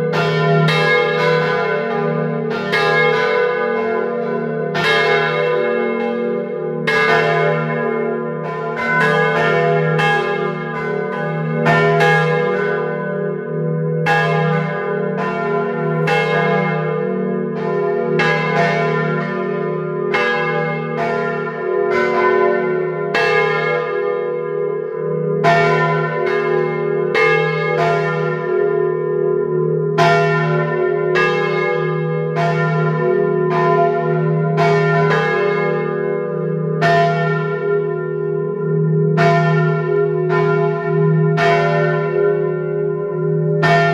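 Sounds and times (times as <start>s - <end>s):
church bells pealing: 0.0s - 43.9s
low hum from bells: 0.0s - 43.9s.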